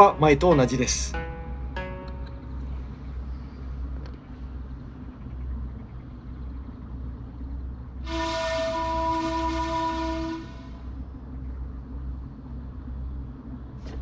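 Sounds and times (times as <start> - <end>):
low outdoor rumble: 0.0 - 14.0
single-pitched horn: 8.1 - 10.9.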